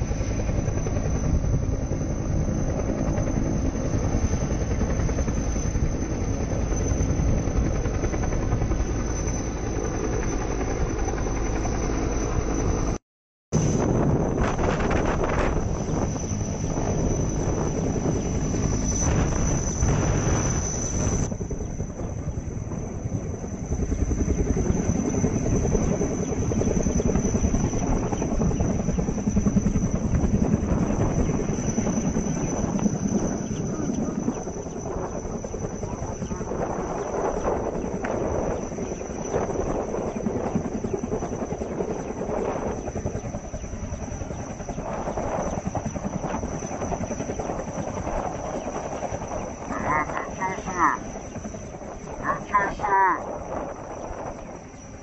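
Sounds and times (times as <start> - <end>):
helicopter hovering: 0.0 - 13.0, 13.6 - 55.0
high engine whine: 13.6 - 22.6.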